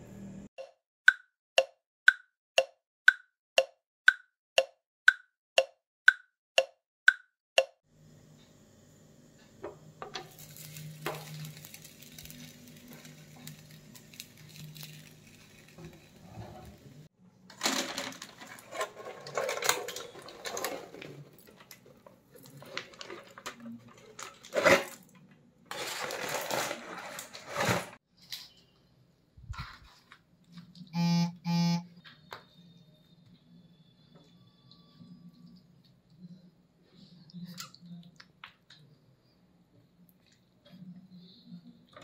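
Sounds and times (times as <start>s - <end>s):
aluminium foil crinkling: 10.2s - 16.9s, 17.5s - 25.1s, 25.7s - 28.0s.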